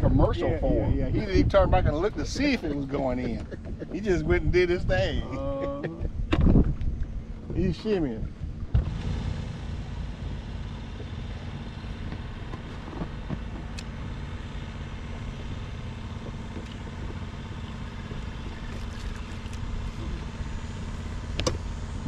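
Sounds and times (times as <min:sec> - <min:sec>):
wind buffeting microphone: 0:00.0 - 0:09.0.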